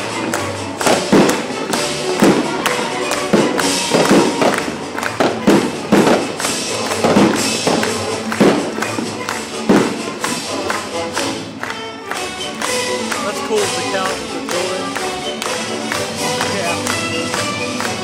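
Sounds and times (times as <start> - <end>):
fireworks bursting: 0.0 - 11.5
fireworks crackling: 0.0 - 18.0
symphony orchestra playing: 0.0 - 18.0.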